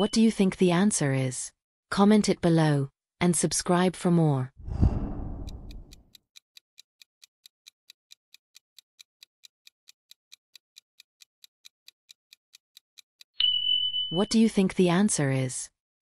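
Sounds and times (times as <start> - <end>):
whoosh: 4.6 - 6.0
clock ticking: 5.2 - 6.0, 6.8 - 13.3.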